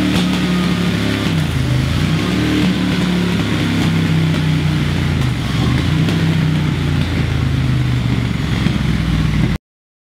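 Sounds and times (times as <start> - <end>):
motorcycle engine under load: 0.0 - 9.6.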